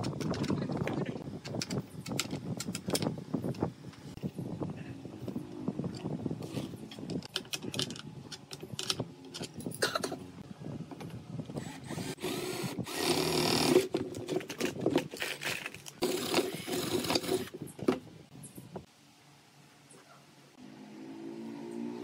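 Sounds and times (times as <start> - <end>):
cordless drill into wood: 11.6 - 13.8.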